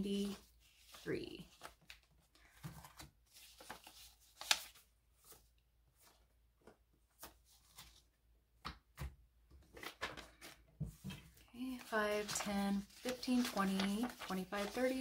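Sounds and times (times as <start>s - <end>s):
paper bills rustling: 0.0s - 6.2s, 9.7s - 10.6s, 11.6s - 15.0s.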